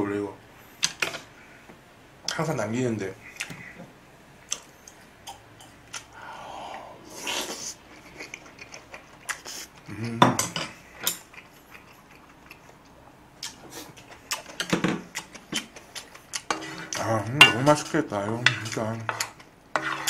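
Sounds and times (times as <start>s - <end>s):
person murmuring: 9.8s - 10.4s.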